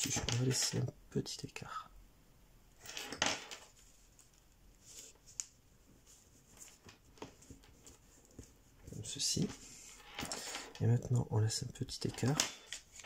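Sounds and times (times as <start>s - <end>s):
paper rustling: 12.1s - 13.0s.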